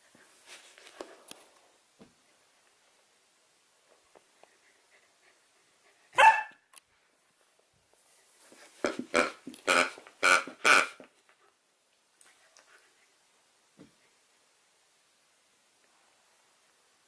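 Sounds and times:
puppy barking: 6.1 - 6.6.

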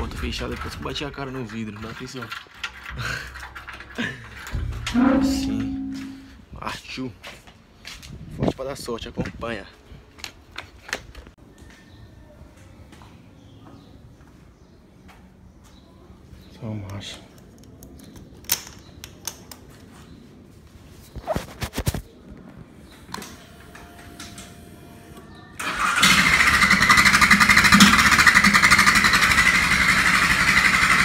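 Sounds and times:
motorcycle engine running: 26.1 - 31.0.

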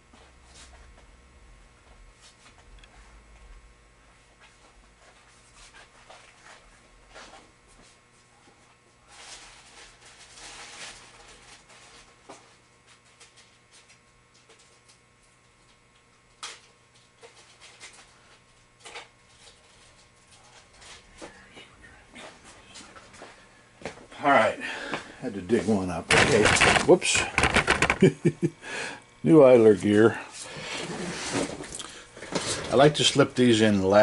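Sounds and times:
rummaging through parts: 26.1 - 28.1
scattered clicks and knocks: 26.1 - 28.3.

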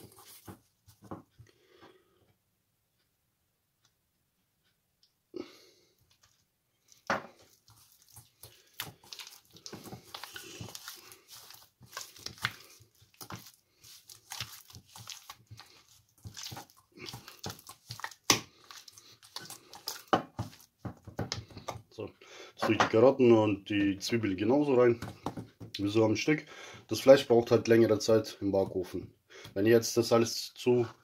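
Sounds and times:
hands kneading wet meat: 6.8 - 22.1, 22.9 - 30.4.

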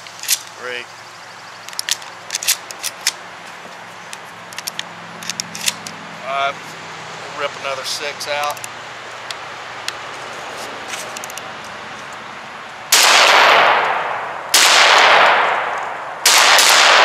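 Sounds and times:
shotgun shots with long echo: 12.9 - 17.0.

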